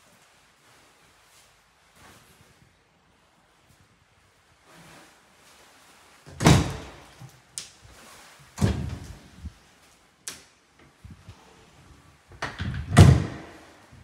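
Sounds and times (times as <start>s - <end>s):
cupboard door opening: 6.3s - 7.0s, 8.6s - 9.2s, 12.3s - 13.6s
loud door thuds: 12.6s - 13.5s.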